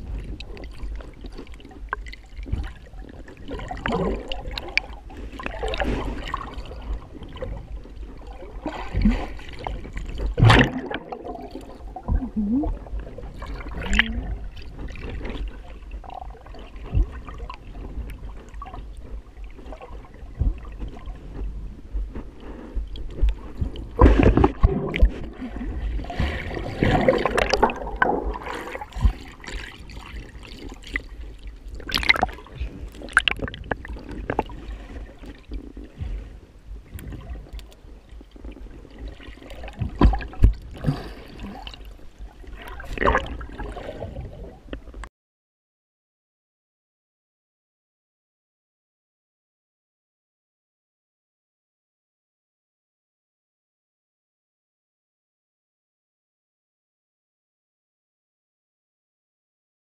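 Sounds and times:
underwater water sloshing and splashing: 0.0s - 45.1s
underwater thumps: 8.6s - 15.5s, 16.8s - 31.1s, 31.8s - 34.6s, 39.6s - 41.8s.

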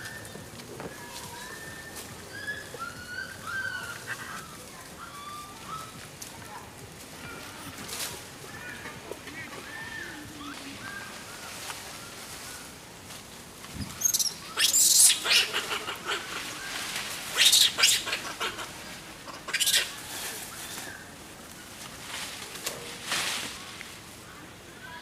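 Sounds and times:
monkeys squealing and screeching: 14.0s - 20.2s.

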